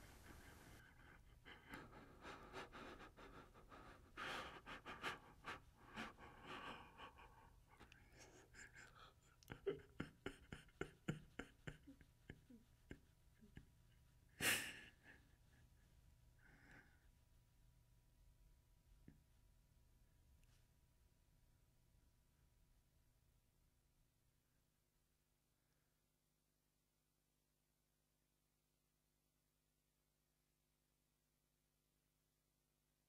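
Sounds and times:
person breathing and sighing: 0.0 - 13.6, 14.3 - 15.6, 16.4 - 17.1.

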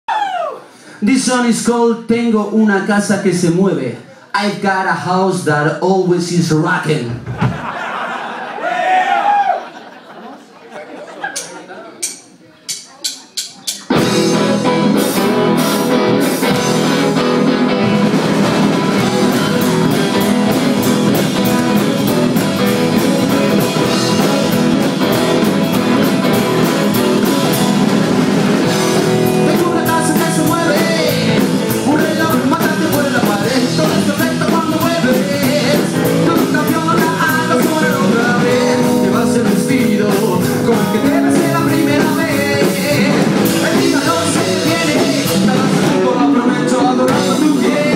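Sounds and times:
drum kit beat: 11.4 - 47.9
electric guitar: 13.8 - 47.9
upright bass: 13.8 - 47.9
man singing: 28.7 - 47.9.

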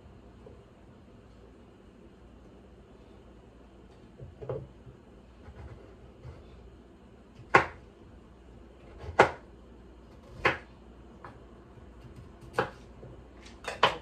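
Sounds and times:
knife chopping on wooden board: 7.4 - 7.8, 8.8 - 9.4, 10.1 - 11.4, 12.0 - 12.9.

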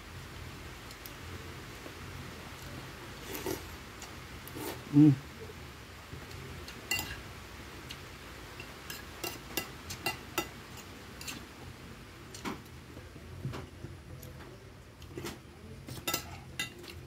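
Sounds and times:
cutlery clinking on a plate: 6.7 - 7.2, 8.6 - 11.4, 15.2 - 17.0.

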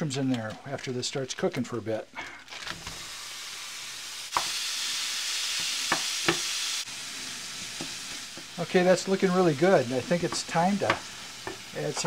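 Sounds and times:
meat sizzling in a pan: 2.4 - 12.0
utensil knocking in pan: 5.9 - 6.5, 10.0 - 12.0.

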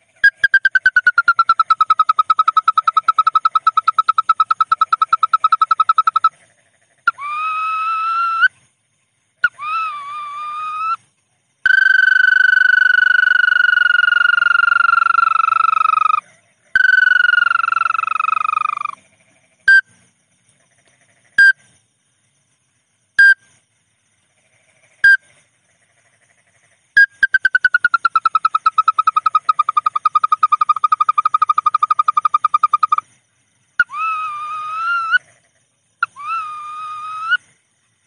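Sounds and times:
bird lure call whistles: 33.8 - 35.2, 36.0 - 37.4.

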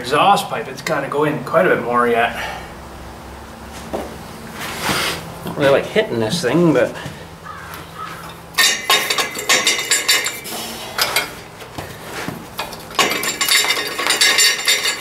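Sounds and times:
metal clanking and scraping: 8.0 - 15.0.

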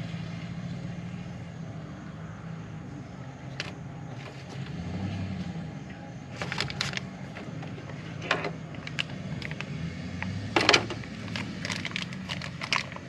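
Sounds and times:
paper and plastic bag rustling: 6.3 - 9.6, 11.0 - 13.0.

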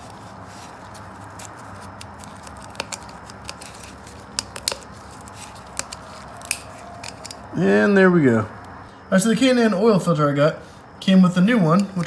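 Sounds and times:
rubber rubbing and scraping: 0.0 - 7.4.

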